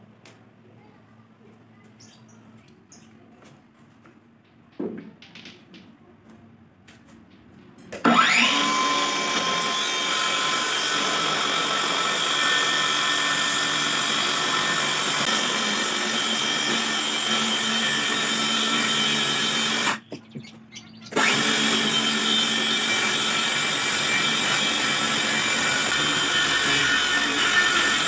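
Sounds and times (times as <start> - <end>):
circular saw cutting wood: 8.0 - 20.1, 21.1 - 28.0.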